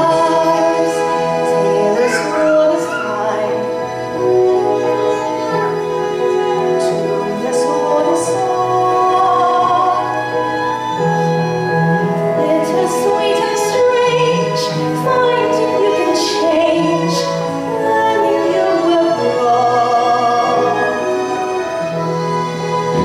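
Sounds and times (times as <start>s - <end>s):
woman singing a ballad: 0.0s - 3.8s, 7.1s - 10.4s, 11.8s - 21.0s
instrumental accompaniment: 0.0s - 23.0s.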